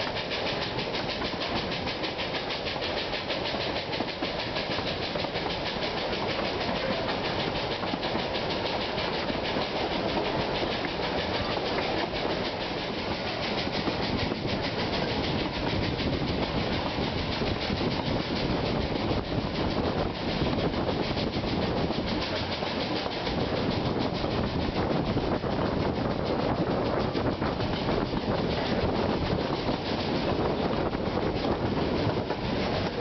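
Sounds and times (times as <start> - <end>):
train carriages rumbling and rattling: 0.0 - 33.0.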